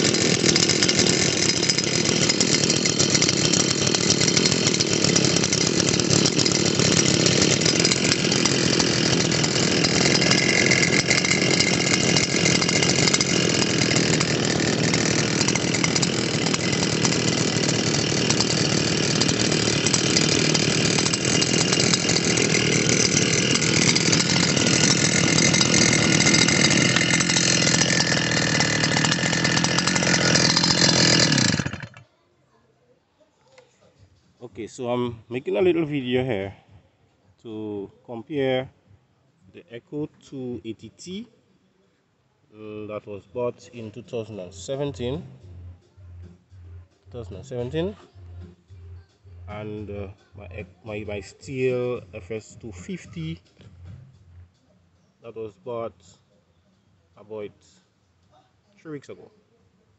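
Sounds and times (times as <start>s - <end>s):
two-stroke engine running: 0.0s - 32.0s, 44.2s - 54.4s.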